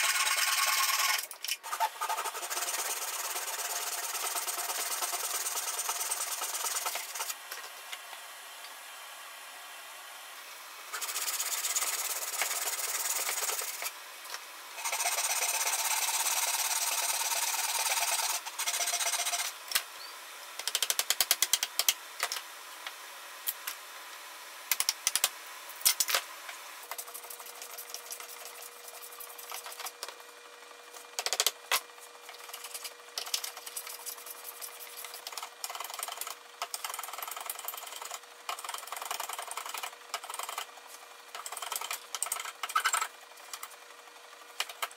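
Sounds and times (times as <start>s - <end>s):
tool scraping wood: 0.0s - 7.4s, 10.9s - 13.9s, 14.8s - 19.5s, 26.8s - 30.2s, 32.1s - 40.7s.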